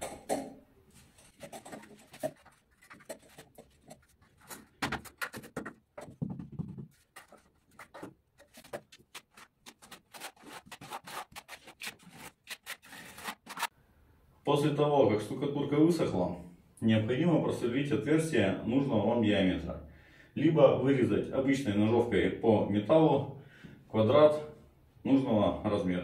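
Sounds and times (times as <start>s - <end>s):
hands rubbing board on plaster: 1.1s - 13.7s.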